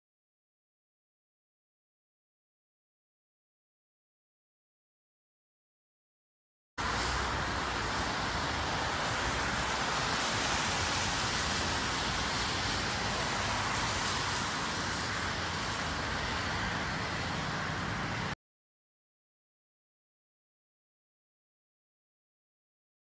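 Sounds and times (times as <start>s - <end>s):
tyres hissing on wet road: 6.8s - 18.4s.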